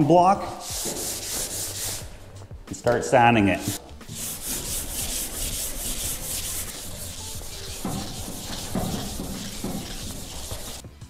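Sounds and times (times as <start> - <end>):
sanding block on metal: 0.6 - 2.1, 3.5 - 10.8.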